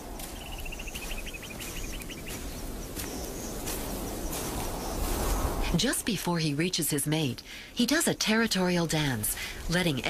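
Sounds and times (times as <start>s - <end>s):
small bird chirping rapidly: 0.3s - 5.2s.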